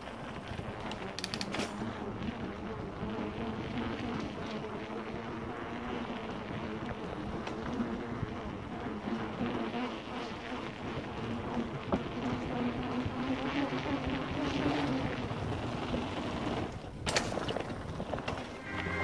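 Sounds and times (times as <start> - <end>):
bike rolling on wooden boardwalk: 0.0 - 19.0
light clicks from bike: 0.3 - 2.0.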